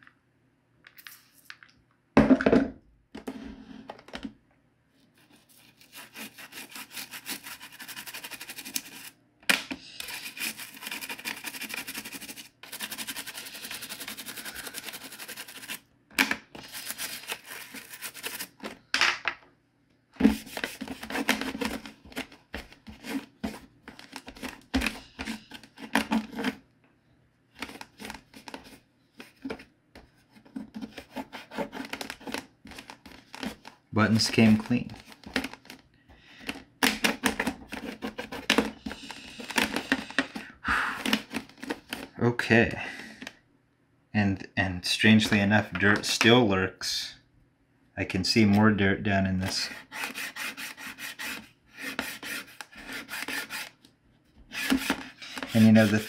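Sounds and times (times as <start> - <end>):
toothbrush scrubbing plastic: 5.2 - 9.2, 10.0 - 15.8, 16.6 - 18.7, 20.2 - 26.6, 30.8 - 35.8, 37.0 - 40.4, 49.4 - 53.8, 54.5 - 56.0
cloth rubbing plastic case: 30.3 - 35.8, 36.4 - 42.2, 54.6 - 56.0.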